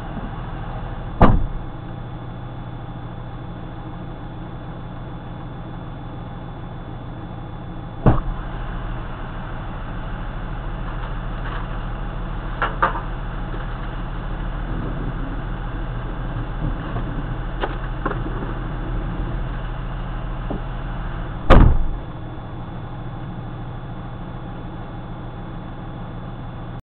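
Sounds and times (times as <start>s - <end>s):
low hum: 0.0s - 26.8s
loud sharp thump: 1.2s - 1.7s, 8.0s - 8.4s, 21.4s - 22.0s
rain on a vehicle: 8.3s - 22.0s.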